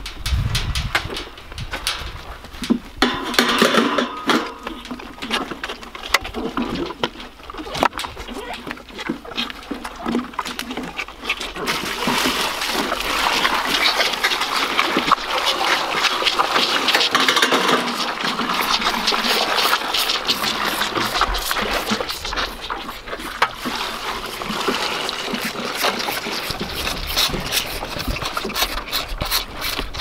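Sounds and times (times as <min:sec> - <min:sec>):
bucket knocks and clatter: 0:00.0 - 0:30.0
milk splashing into trough: 0:02.7 - 0:30.0.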